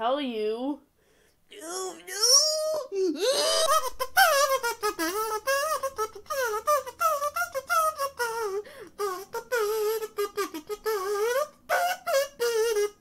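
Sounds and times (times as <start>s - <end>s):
high-pitched cartoon voice wailing: 1.5s - 8.6s.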